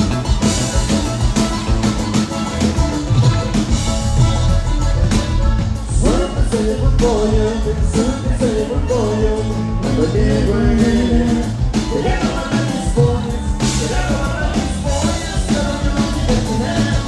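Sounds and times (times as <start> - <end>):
band playing live: 0.0 - 17.0
person singing: 5.9 - 17.0.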